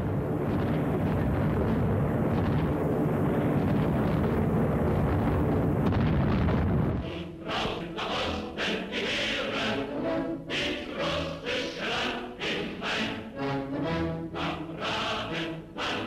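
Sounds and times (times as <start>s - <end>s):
low rumble of explosions: 0.0s - 8.1s
music: 0.0s - 16.0s.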